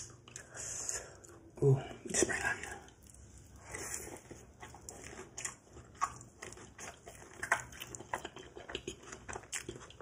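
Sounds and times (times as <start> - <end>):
chewing crisp food: 0.0 - 10.0.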